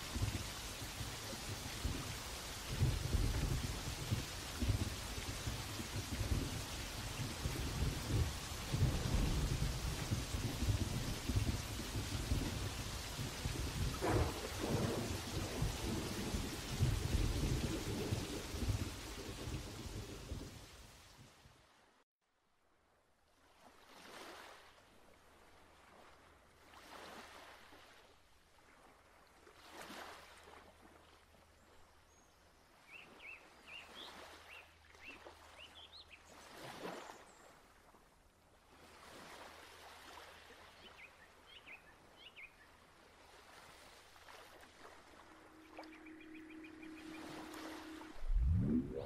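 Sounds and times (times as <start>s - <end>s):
surf washing in: 43.3s - 49.0s
steady low tone: 45.1s - 49.0s
bird chirps: 45.5s - 48.1s.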